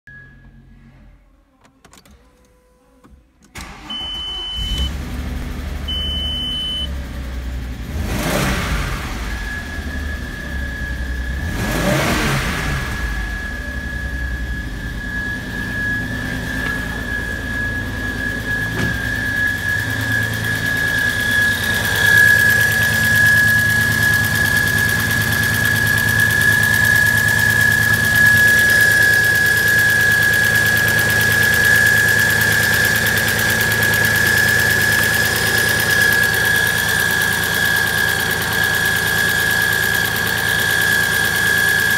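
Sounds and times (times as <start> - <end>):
car engine cranking and idling: 0.4 - 41.9
high-pitched whine: 8.6 - 41.9
warning chimes: 13.0 - 26.1.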